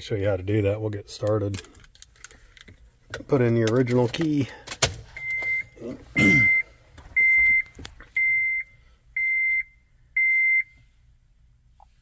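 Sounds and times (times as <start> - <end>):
dashboard warning beeps: 5.1 - 10.9.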